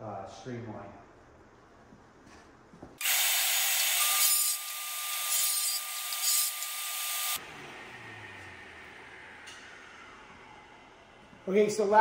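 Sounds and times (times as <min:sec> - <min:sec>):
table saw cutting plywood: 0:03.0 - 0:07.4.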